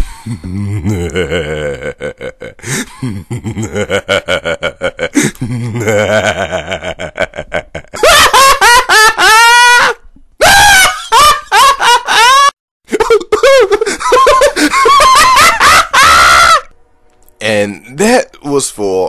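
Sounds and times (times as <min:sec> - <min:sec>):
man laughing and cackling: 0:00.2 - 0:16.7.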